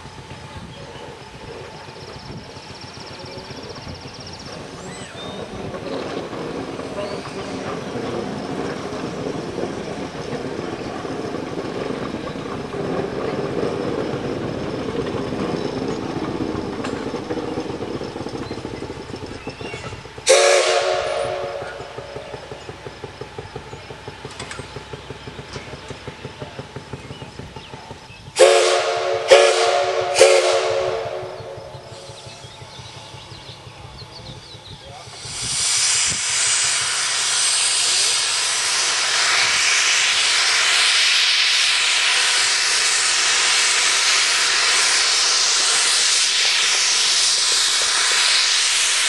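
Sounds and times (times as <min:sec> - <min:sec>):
steam locomotive exhaust chuffing: 0:00.0 - 0:49.0
steam whistle blasts: 0:20.3 - 0:22.0, 0:28.4 - 0:31.6.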